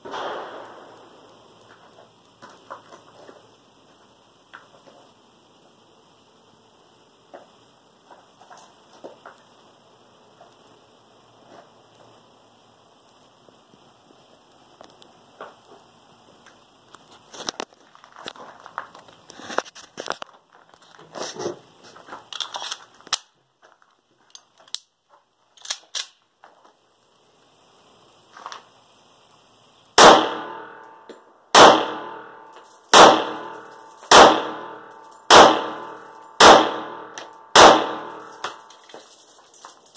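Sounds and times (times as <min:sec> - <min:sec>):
faint clicks and rustling: 0:13.0 - 0:26.8
pistol shots with echo: 0:30.0 - 0:30.8, 0:31.5 - 0:38.6.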